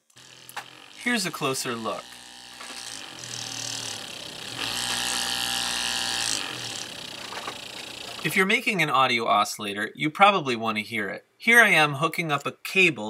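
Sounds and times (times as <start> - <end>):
small motor whirring: 0.0 - 8.3.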